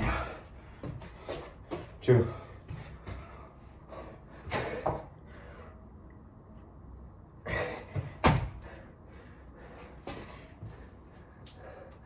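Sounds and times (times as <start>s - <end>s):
hard breathing: 0.0s - 6.0s, 7.4s - 12.0s
body thudding on exercise mat: 7.9s - 8.6s.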